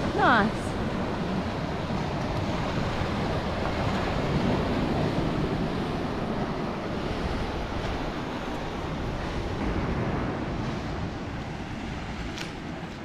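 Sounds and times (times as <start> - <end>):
surf washing onto beach: 0.0 - 13.0
wind buffeting microphone: 0.0 - 13.0.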